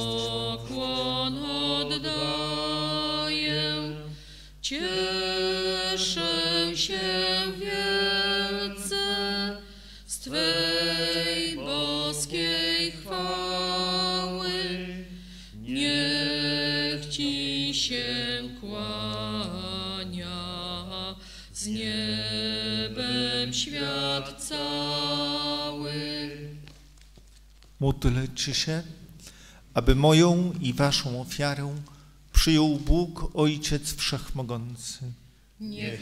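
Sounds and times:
congregation singing a hymn: 0.0 - 26.8, 35.6 - 36.0.

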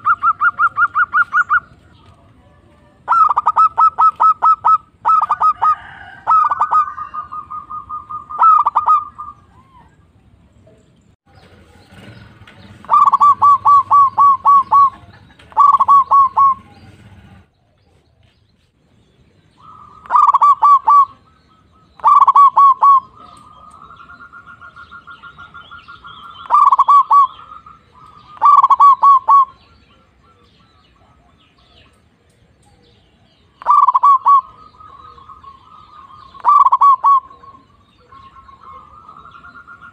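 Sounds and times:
dove cooing rapidly: 0.0 - 1.8, 3.0 - 10.1, 11.7 - 18.1, 19.6 - 32.0, 32.7 - 39.9
soft rolling bird trill: 11.0 - 39.9.

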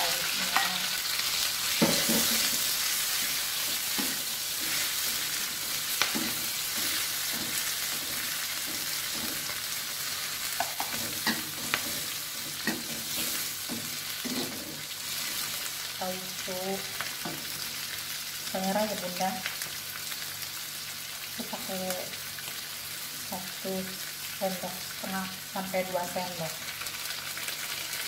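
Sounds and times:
vegetables sizzling in hot oil: 0.0 - 28.0
metal spatula scraping wok: 0.2 - 15.6.

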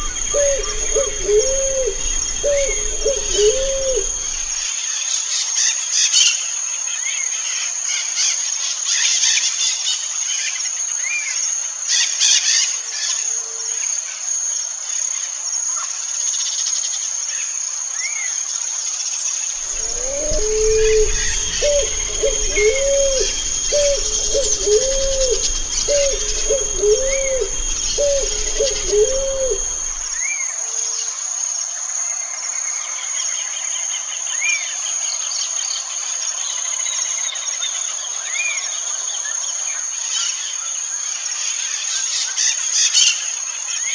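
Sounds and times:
dove cooing: 0.0 - 4.6, 19.6 - 30.2
insects trilling: 0.0 - 4.6, 19.6 - 30.3
small bird chirping: 0.0 - 4.6, 19.6 - 30.2.

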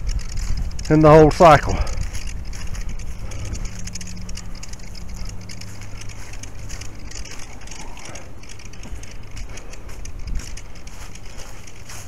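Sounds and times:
low steady hum: 0.0 - 12.0
camera handling noise: 1.9 - 12.0.

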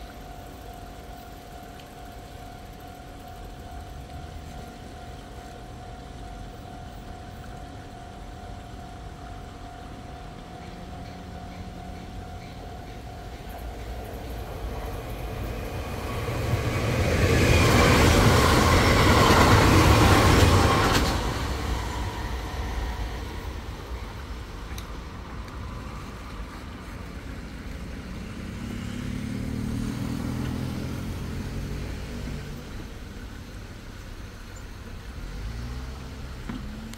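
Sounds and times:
crossing warning bell ringing: 0.0 - 33.3
electric train passing: 0.0 - 36.9
vehicle engine revving: 27.4 - 34.1, 35.0 - 36.9.

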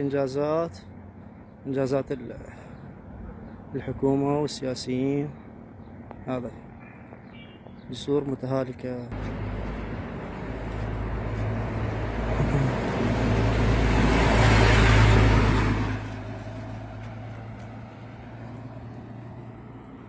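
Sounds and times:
car passing close by: 9.2 - 20.0.

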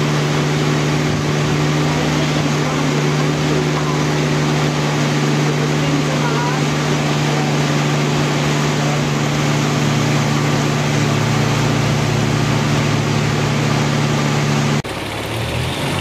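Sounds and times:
boat engine humming: 0.0 - 16.0.

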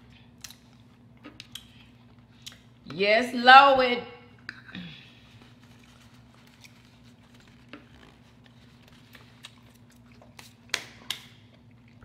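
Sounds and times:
low steady hum: 0.0 - 12.0
small sharp clicks of food handling: 0.4 - 1.8
quiet chewing: 4.4 - 12.0.

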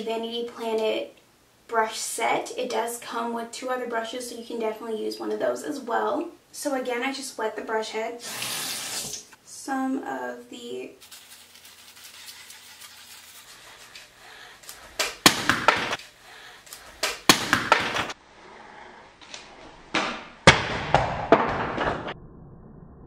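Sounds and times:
spinning brush scrubbing lather: 11.0 - 15.0.

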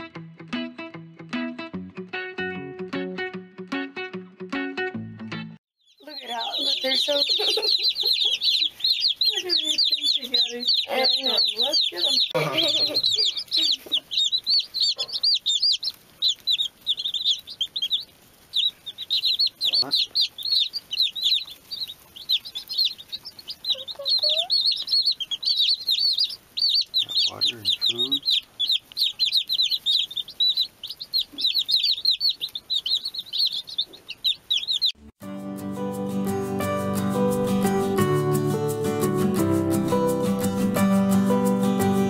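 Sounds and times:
baby chicks peeping: 5.8 - 35.0.

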